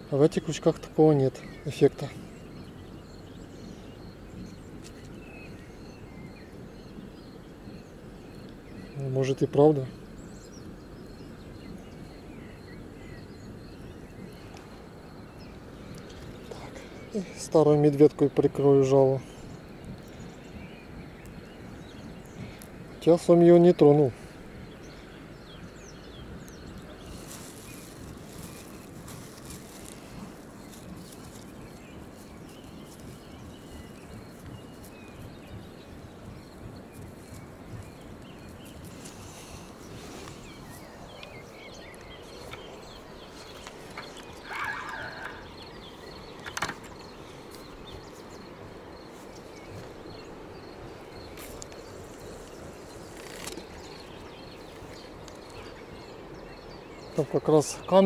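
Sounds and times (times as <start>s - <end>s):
steady low hiss: 0.0s - 58.0s
low wind rumble on microphone: 1.6s - 9.0s, 9.7s - 57.1s
insects chirping: 24.2s - 58.0s
plastic bag crinkling: 27.0s - 31.5s.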